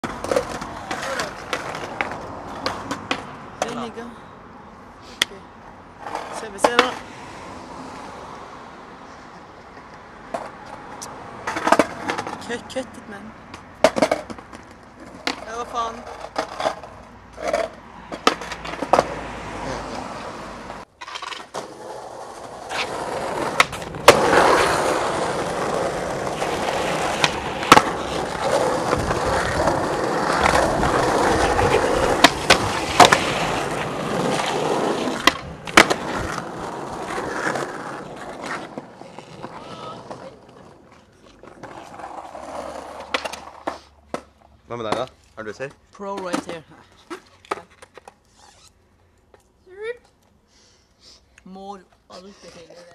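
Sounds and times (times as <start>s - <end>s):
skateboard clacking on ground: 0.0s - 3.9s, 6.0s - 7.0s, 9.8s - 12.5s, 13.5s - 19.2s, 20.7s - 48.2s
skateboard wheels rolling on pavement: 0.0s - 50.4s.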